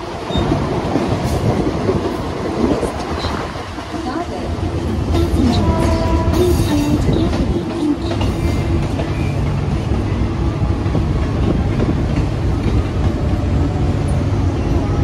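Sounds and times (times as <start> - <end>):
wheels clattering on rails: 0.0 - 10.2
train rumble: 0.0 - 15.0.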